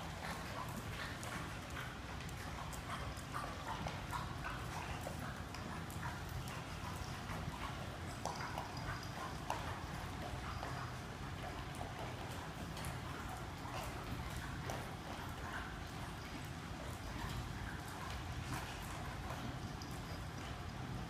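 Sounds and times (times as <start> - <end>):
dogs eating from bowls: 0.0 - 21.0.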